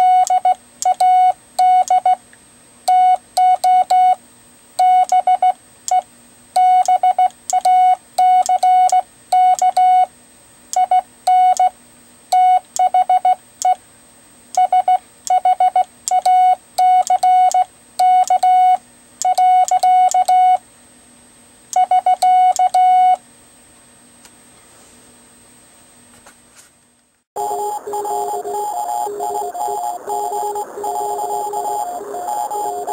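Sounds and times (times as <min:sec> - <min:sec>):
morse code tones: 0:00.0 - 0:02.1, 0:27.4 - 0:32.9.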